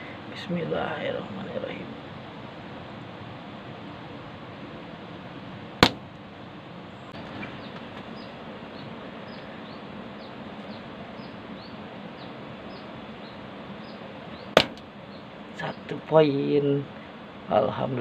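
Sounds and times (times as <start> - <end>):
steady outdoor hiss: 0.0 - 18.0
air rifle shots: 5.8 - 6.1, 14.6 - 14.9.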